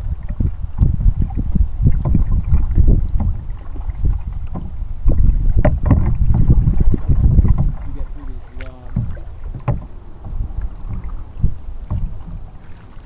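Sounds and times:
paddle strokes splashing water: 0:00.0 - 0:13.0
wind rumble on microphone: 0:00.0 - 0:13.0
sharp knocks: 0:08.6 - 0:10.4.

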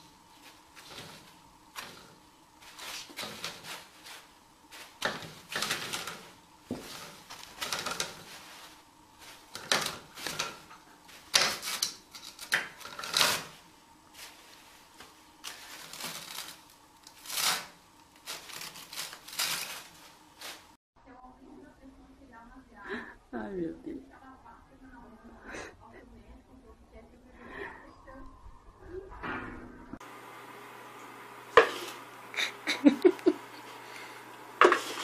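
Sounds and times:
toilet paper rustling: 0:00.0 - 0:20.8, 0:31.6 - 0:35.0.

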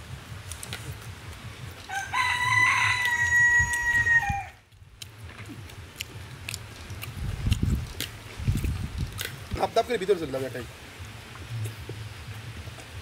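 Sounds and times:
rooster crowing: 0:01.9 - 0:04.6.

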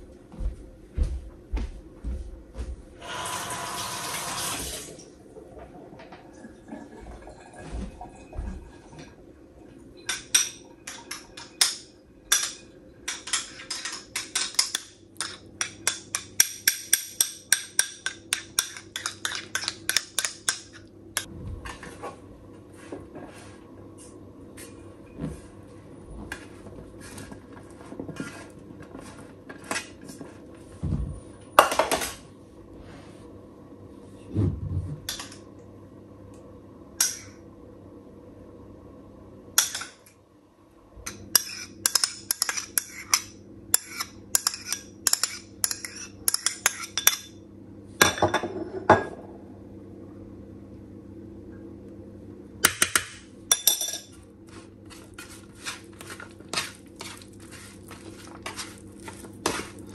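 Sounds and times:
steady low hum: 0:05.0 - 0:59.9
utensils and dishes clinking: 0:10.0 - 0:20.9, 0:41.1 - 0:47.4, 0:52.8 - 0:54.2.

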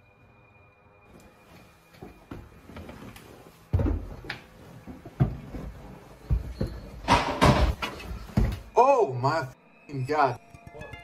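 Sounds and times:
rustling noise: 0:01.1 - 0:08.7
footsteps on wooden stairs: 0:01.9 - 0:08.8.

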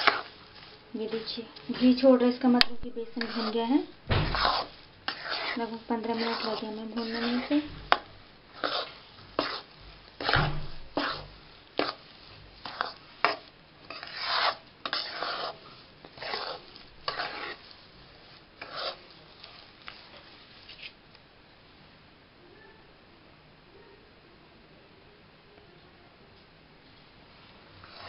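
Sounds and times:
spatula scraping a pan: 0:00.0 - 0:21.0, 0:27.8 - 0:28.0.

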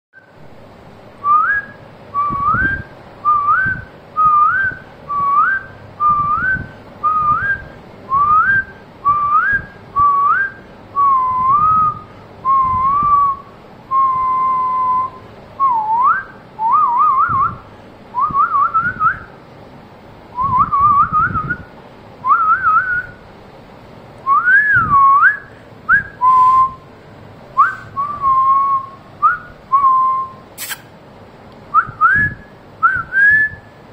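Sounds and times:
person whistling: 0:01.3 - 0:17.6, 0:24.3 - 0:26.8, 0:27.6 - 0:30.8, 0:31.8 - 0:33.6.

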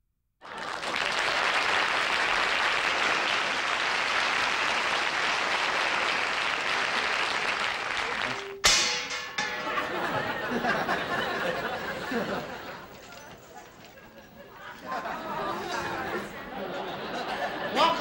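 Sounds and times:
audience applauding: 0:00.4 - 0:08.6.

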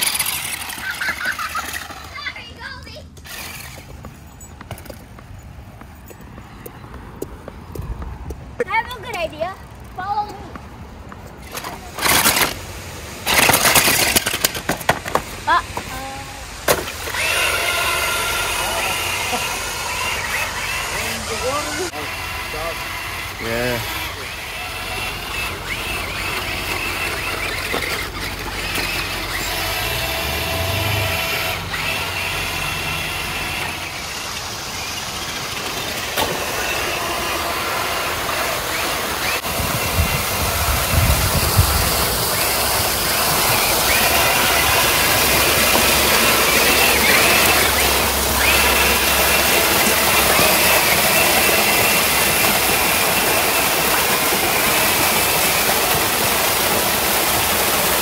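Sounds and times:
wheels splashing in water: 0:00.0 - 0:05.5, 0:08.7 - 0:58.0
electric motors whining: 0:00.0 - 0:07.2, 0:11.2 - 0:58.0
waterfall rushing: 0:29.2 - 0:58.0.

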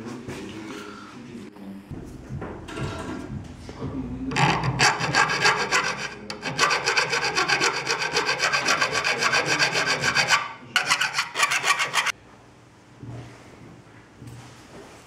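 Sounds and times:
file scraping metal: 0:04.3 - 0:12.2.

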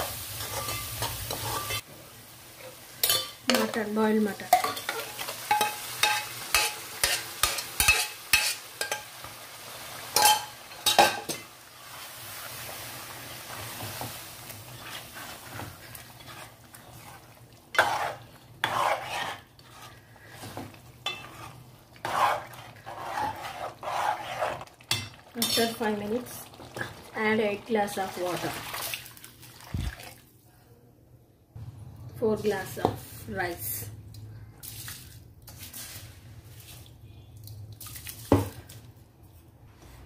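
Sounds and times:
food sizzling in a pot: 0:00.0 - 0:28.4
ladle scraping pot: 0:14.7 - 0:25.8.

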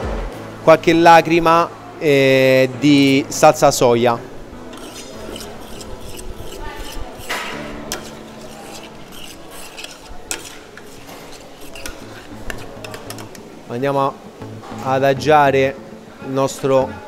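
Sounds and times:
metal spoon scraping a pot: 0:04.7 - 0:13.5.

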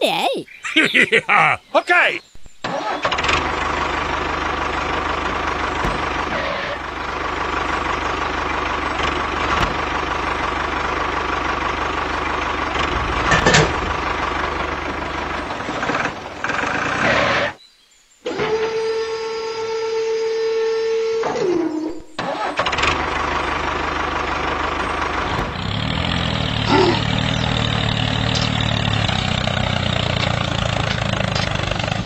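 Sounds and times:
tractor engine throbbing: 0:02.8 - 0:17.5, 0:22.6 - 0:32.0.

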